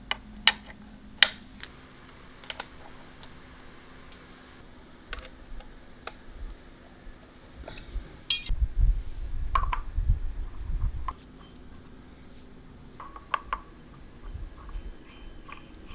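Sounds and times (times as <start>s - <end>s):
metallic clinks and taps: 8.3s - 8.5s.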